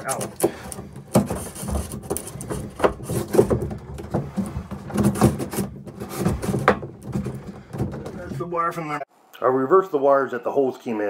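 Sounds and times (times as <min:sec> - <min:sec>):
cable scraping and knocking: 0:00.0 - 0:08.8.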